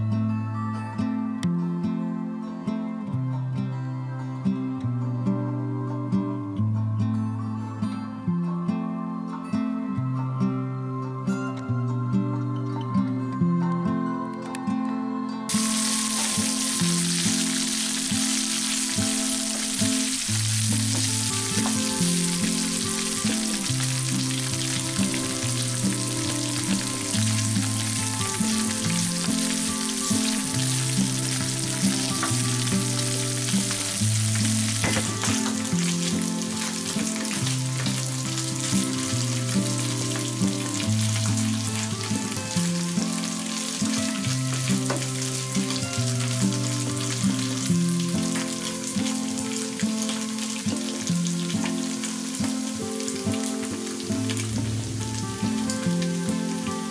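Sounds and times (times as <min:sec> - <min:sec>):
background music: 0:00.0 - 0:56.9
meat sizzling in a frying pan: 0:15.5 - 0:56.6.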